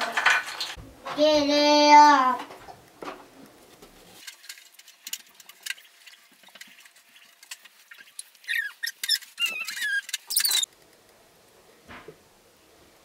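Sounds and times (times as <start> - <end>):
high gliding squeaks: 8.1 - 10.7.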